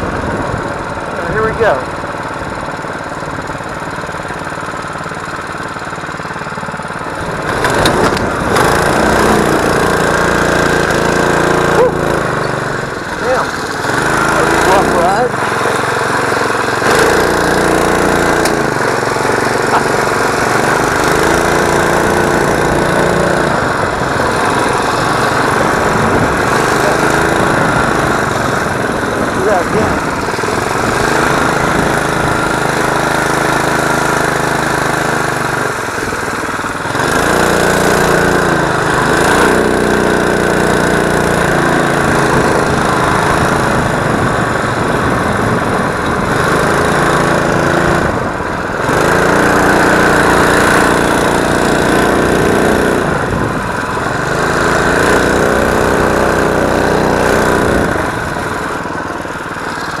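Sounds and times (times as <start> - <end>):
small engine running under load: 0.0 - 60.0.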